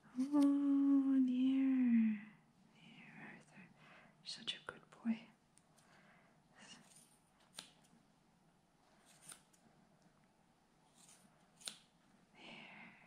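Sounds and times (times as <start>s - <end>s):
scissors snipping wool: 6.7s - 7.9s, 9.0s - 9.6s, 10.9s - 12.0s.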